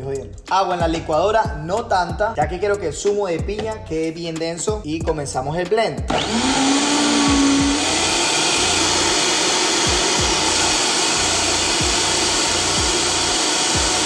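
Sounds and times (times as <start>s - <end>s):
blender whirring: 6.1s - 14.0s.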